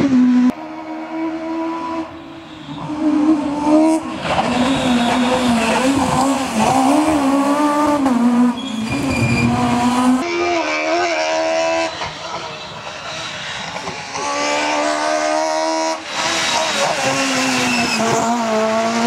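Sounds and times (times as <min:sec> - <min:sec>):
rally car engines revving: 0:02.7 - 0:12.4, 0:13.7 - 0:19.0.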